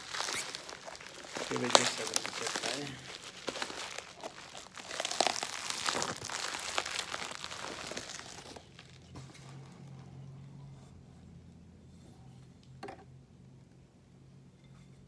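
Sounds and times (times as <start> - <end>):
plastic wrapping crinkling: 0.0 - 10.2.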